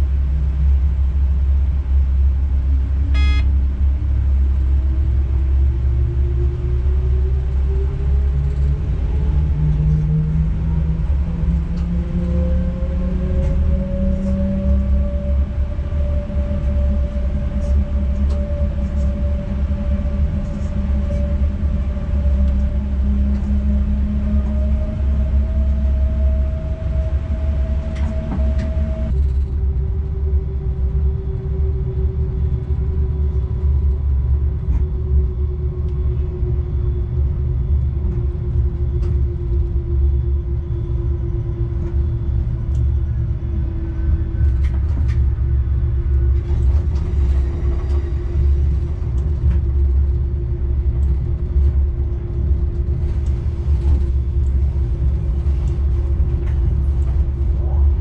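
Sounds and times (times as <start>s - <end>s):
electric locomotive rumble: 0.0s - 58.0s
humming tone dropping in pitch: 3.0s - 3.8s, 7.7s - 45.8s.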